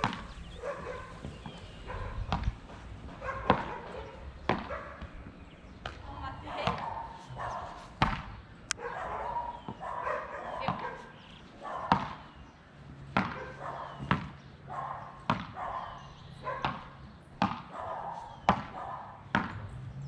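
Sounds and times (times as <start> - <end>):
paddles hitting ball: 4.5 - 5.2, 7.9 - 8.4, 11.9 - 12.3, 13.1 - 13.4, 14.0 - 14.4, 15.2 - 15.6, 16.6 - 17.7, 18.4 - 19.6.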